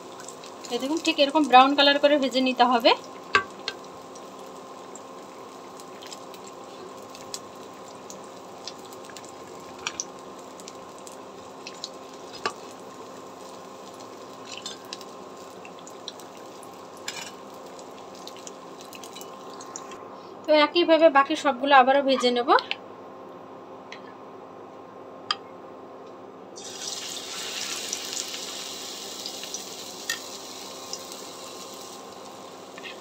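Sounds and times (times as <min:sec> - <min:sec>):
deep-frying sizzle with pops: 0:00.0 - 0:20.0, 0:26.6 - 0:33.0
faint steady hum: 0:00.0 - 0:33.0.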